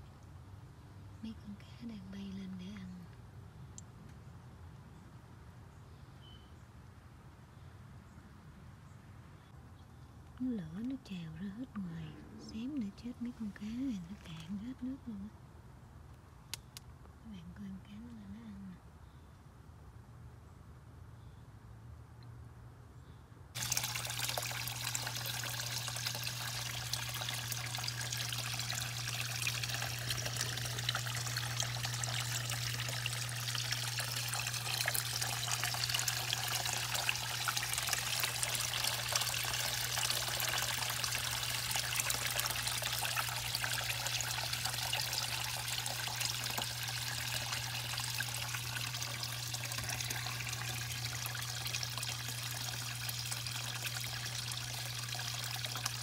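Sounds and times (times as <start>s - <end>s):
steady low hum: 10.4s - 16.4s, 23.6s - 56.0s
water pouring into pond: 23.6s - 56.0s.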